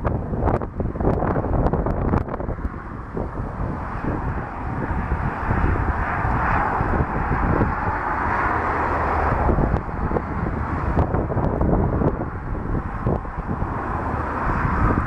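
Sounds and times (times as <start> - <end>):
jet engines rushing: 0.0 - 15.0
wind rumbling on microphone: 0.0 - 15.0.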